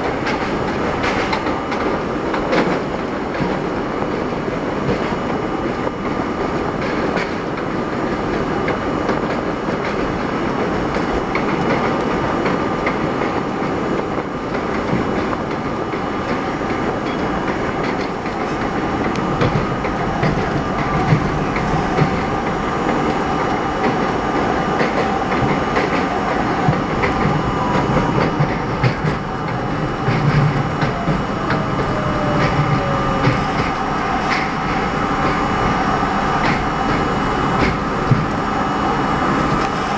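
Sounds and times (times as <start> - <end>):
subway train rumbling: 0.0 - 39.9
wheels clacking over rail joints: 14.5 - 38.4.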